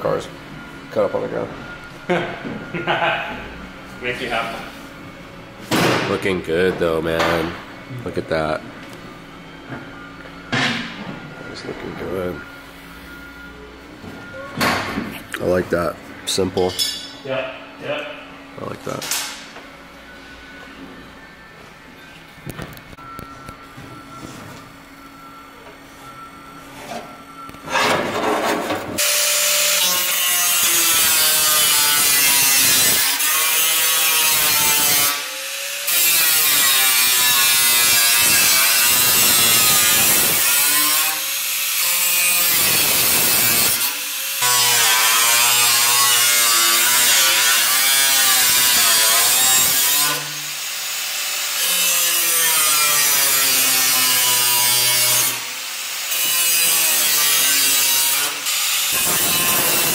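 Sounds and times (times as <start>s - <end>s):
angle grinder grinding steel: 29.0s - 59.9s.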